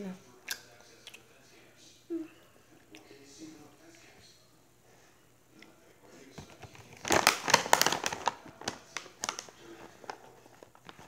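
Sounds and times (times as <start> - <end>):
plastic candy bag crinkling: 6.4 - 11.0.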